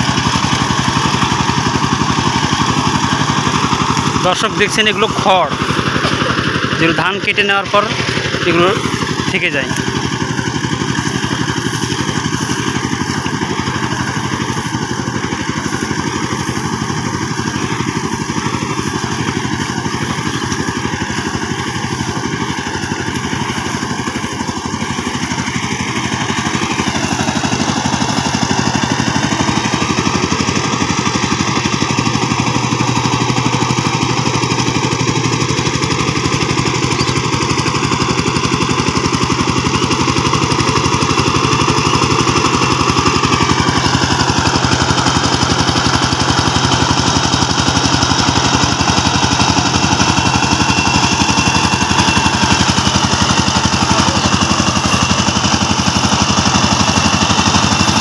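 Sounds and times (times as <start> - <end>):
diesel engine running steadily: 0.0 - 58.0.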